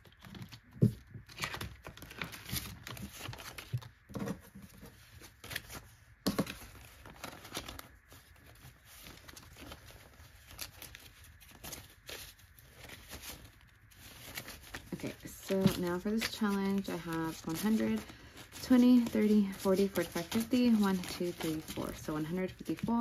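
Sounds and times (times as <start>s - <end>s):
paper bills rustling: 0.1s - 23.0s
plastic pouch crinkling: 6.6s - 23.0s.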